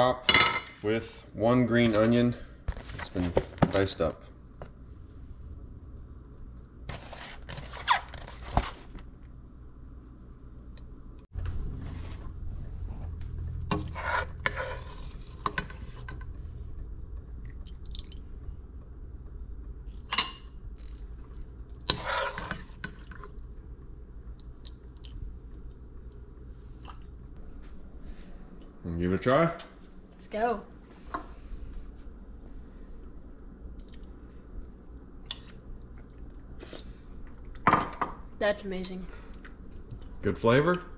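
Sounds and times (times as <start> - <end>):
steady low hum: 0.0 - 40.9
plastic ladle scraping in metal pot: 13.7 - 16.2, 21.9 - 22.7.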